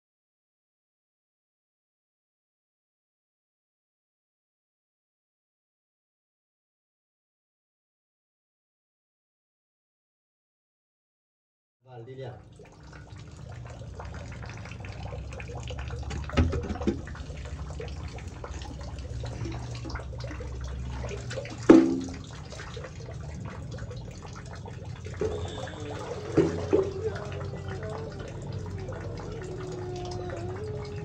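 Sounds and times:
water sloshing and splashing: 12.4s - 31.0s.

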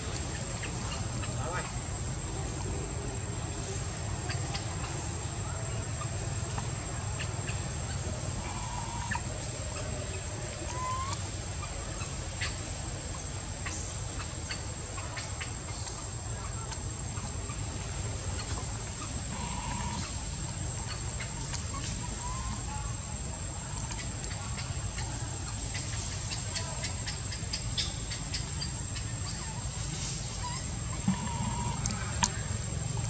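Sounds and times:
high insect drone: 0.0s - 33.0s
soft chirping calls: 0.0s - 33.0s
faint clicks: 31.8s - 32.4s.

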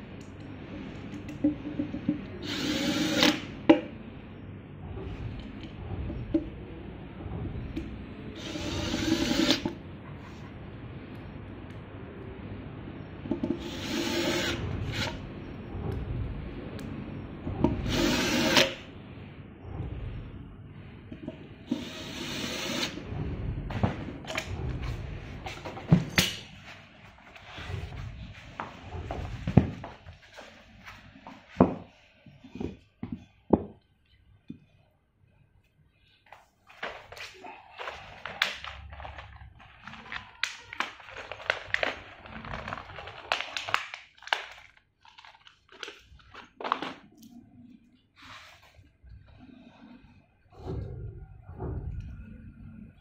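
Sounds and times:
cordless drill driving screw: 2.4s - 3.4s, 8.4s - 9.6s, 13.6s - 15.2s, 17.9s - 18.8s
plastic packaging crinkling: 36.7s - 47.2s.

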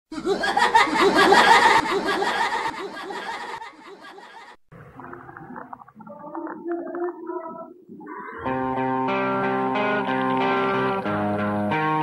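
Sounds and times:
gravelly creature cackling laugh: 0.1s - 4.6s.

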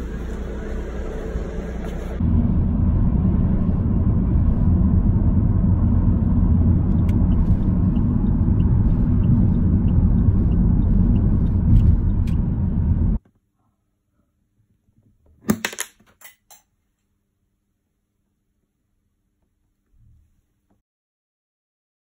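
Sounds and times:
vehicle engine and tyre rumble: 0.0s - 13.2s.

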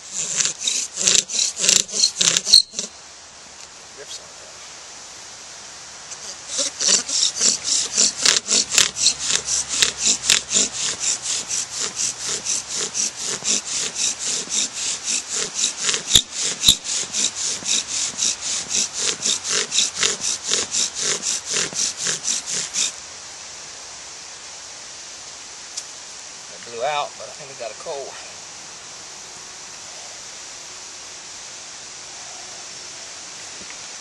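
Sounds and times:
bow drill strokes: 0.0s - 3.0s, 6.0s - 23.0s
sharp clicks: 0.3s - 2.9s.

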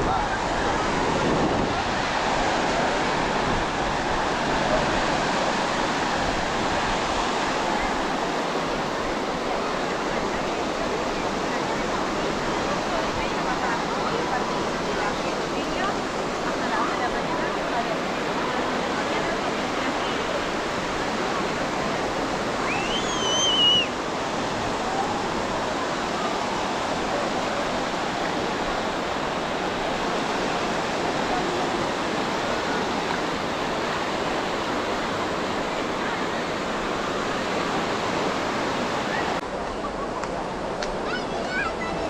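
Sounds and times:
beach crowd chatter: 0.0s - 42.0s
ocean surf: 0.0s - 42.0s
high-pitched wavering call: 22.6s - 23.9s.

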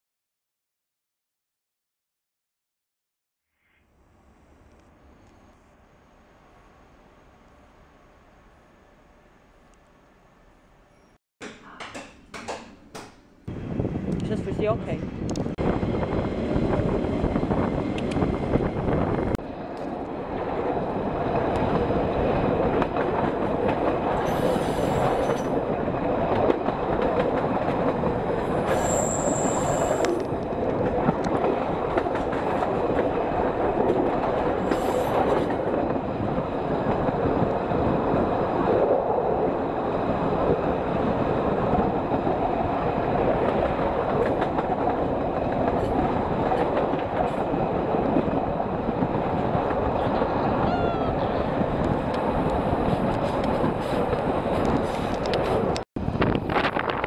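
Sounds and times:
train wheel and rail noise: 4.0s - 57.0s
high-pitched wheel squeals: 28.7s - 30.2s.

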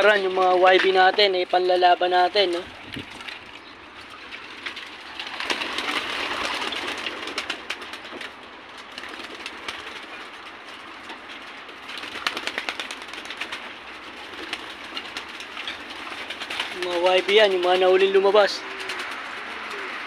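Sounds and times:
pigeon wings flapping: 2.4s - 20.0s
pigeons cooing: 2.4s - 20.0s
rushing noise: 16.3s - 20.0s.

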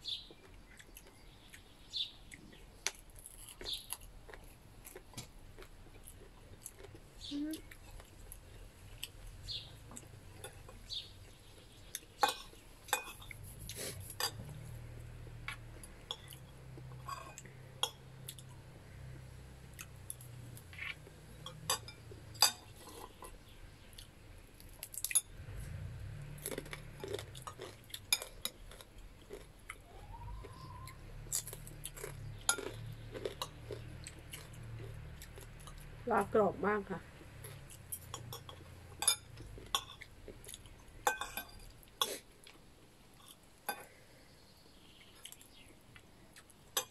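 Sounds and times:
chewing crispy food: 0.0s - 46.9s
cutlery clinking on plates: 12.2s - 13.4s, 21.4s - 23.1s, 38.0s - 40.1s, 41.0s - 42.2s.

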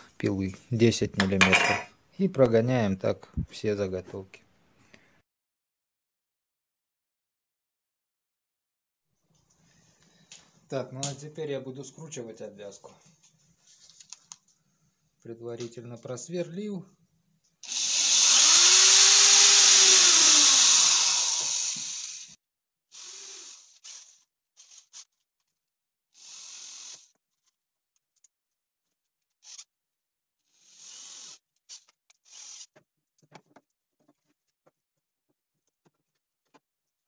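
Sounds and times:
cordless drill driving a screw: 17.6s - 24.2s, 26.2s - 27.1s, 30.6s - 32.7s.

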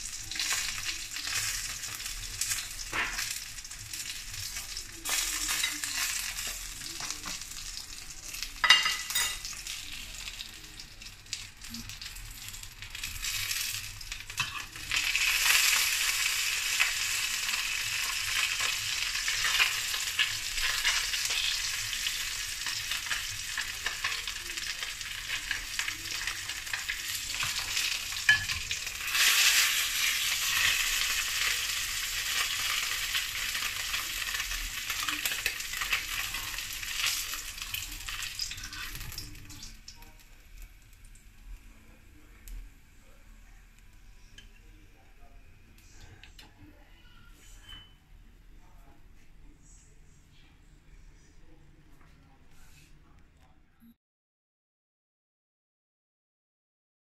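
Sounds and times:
fish sizzling in oil: 0.0s - 41.4s.

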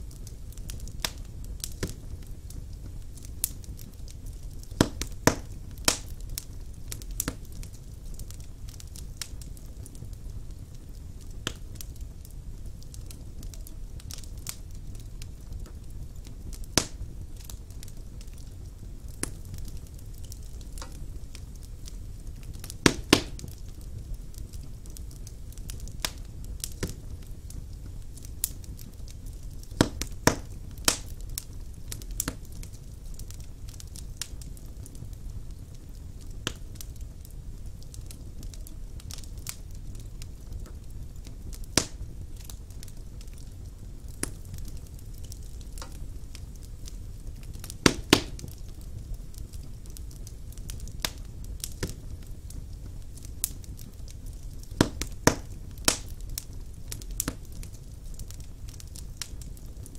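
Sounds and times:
wood crackling and popping: 0.0s - 59.9s.

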